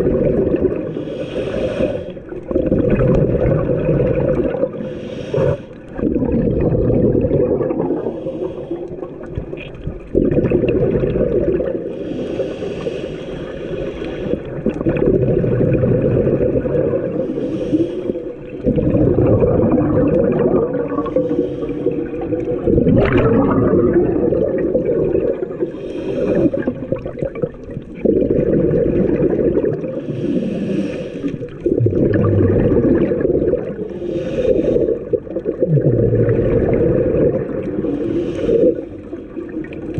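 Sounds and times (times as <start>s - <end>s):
exhaled bubbles gurgling: 0.0s - 39.9s
regulator inhale hiss: 0.9s - 2.3s, 4.8s - 6.0s, 8.0s - 9.3s, 11.9s - 14.7s, 17.2s - 18.6s, 21.0s - 22.4s, 25.6s - 26.8s, 30.0s - 31.6s, 33.8s - 35.2s, 37.8s - 39.6s.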